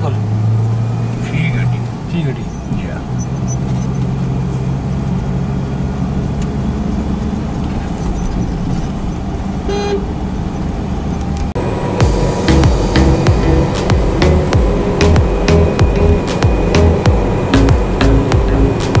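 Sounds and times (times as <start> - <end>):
car engine and tyre drone: 0.0 - 19.0
car horn toot: 9.7 - 10.1.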